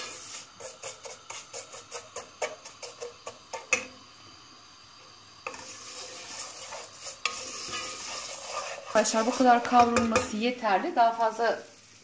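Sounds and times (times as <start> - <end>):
wooden spoon stirring and scraping: 0.0 - 3.9, 5.4 - 10.6
light sizzle: 0.0 - 12.0.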